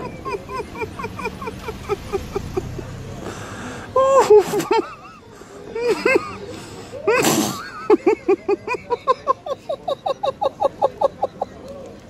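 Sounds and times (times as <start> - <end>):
person laughing hard: 0.0 - 2.8, 4.0 - 5.2.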